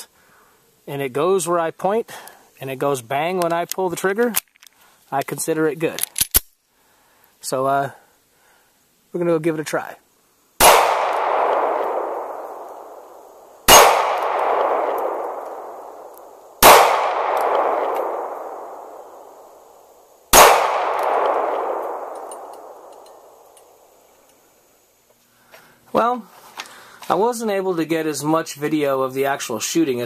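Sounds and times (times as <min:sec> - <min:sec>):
pistol shots: 0:10.6 - 0:19.4, 0:20.3 - 0:23.4.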